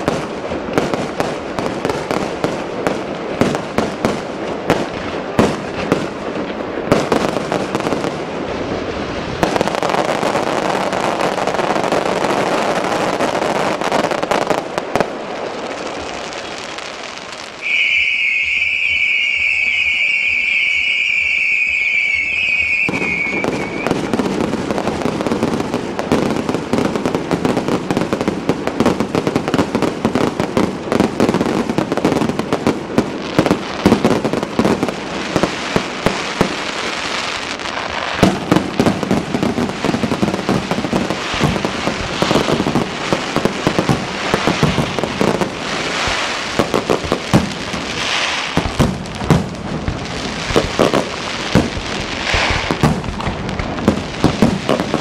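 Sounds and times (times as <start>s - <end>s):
firework bangs: 0.0s - 55.0s
fireworks crackling and popping: 0.0s - 55.0s
firework whistle: 17.5s - 25.0s, 50.5s - 53.1s.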